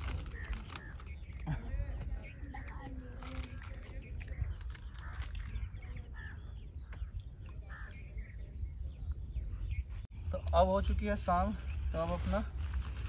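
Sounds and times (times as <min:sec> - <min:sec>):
wind rumble on microphone: 0:00.0 - 0:10.0
faint bird chirps: 0:00.0 - 0:10.4.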